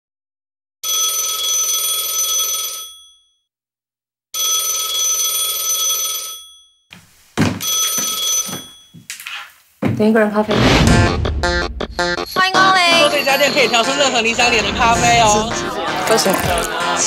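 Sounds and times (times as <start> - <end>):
telephone bell ringing: 0.8 - 3.5, 4.4 - 6.9, 7.5 - 9.1.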